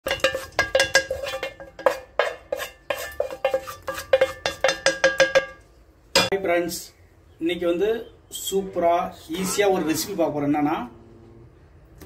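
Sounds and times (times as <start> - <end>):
utensil clinking against dish: 0.0 - 5.6.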